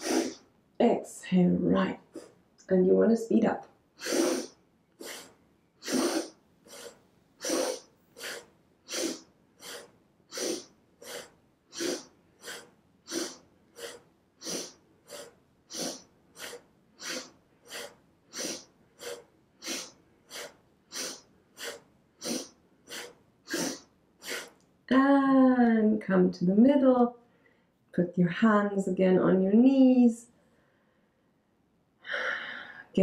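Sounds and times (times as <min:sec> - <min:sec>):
person breathing fast through nose: 0:00.0 - 0:00.4, 0:04.0 - 0:24.6.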